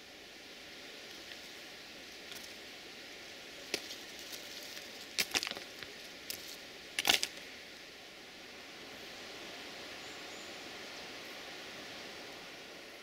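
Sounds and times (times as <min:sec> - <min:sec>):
steady hiss: 0:00.0 - 0:13.0
dry leaves crackling on rails: 0:00.9 - 0:07.5.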